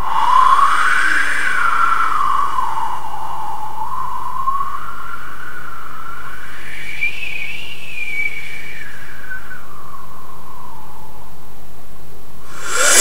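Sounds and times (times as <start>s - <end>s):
beatboxer whistle-like gliding tone: 12.6s - 13.0s.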